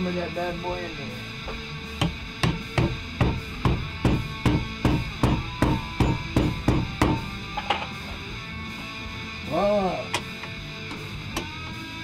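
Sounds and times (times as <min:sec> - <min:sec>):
background music: 0:00.0 - 0:12.0
hammer blows: 0:02.0 - 0:07.4.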